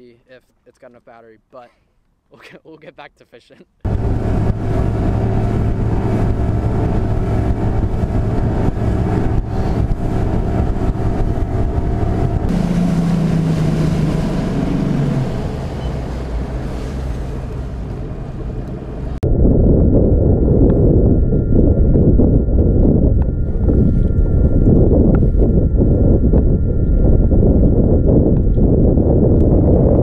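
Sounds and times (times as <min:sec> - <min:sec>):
outboard motor running: 0:03.8 - 0:19.2, 0:20.0 - 0:30.0.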